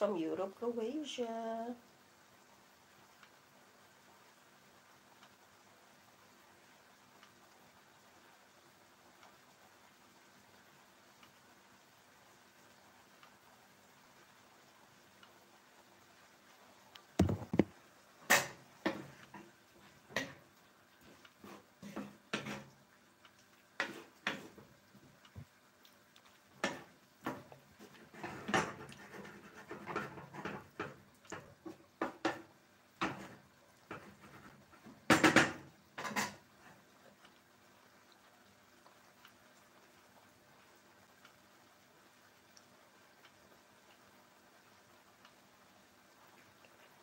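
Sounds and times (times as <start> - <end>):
wooden spatula scraping pan: 21.1 - 22.7, 23.8 - 24.7, 26.6 - 31.0, 33.0 - 35.0.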